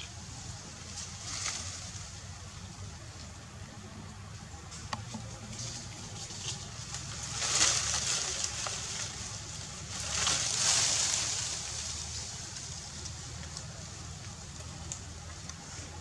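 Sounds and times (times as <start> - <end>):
rustling hiss: 0.0 - 16.0.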